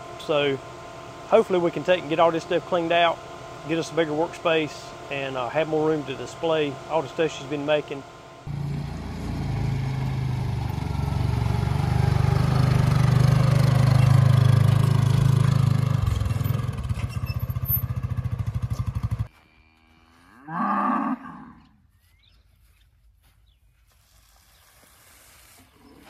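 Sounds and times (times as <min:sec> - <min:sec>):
vehicle engine running: 0:00.0 - 0:19.3
cow mooing: 0:19.4 - 0:21.8.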